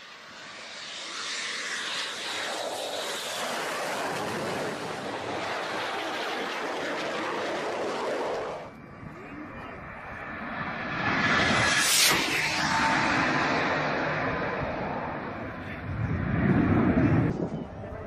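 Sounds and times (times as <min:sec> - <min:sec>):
jet aircraft roaring overhead: 0:00.0 - 0:18.0
rushing noise: 0:10.9 - 0:17.3.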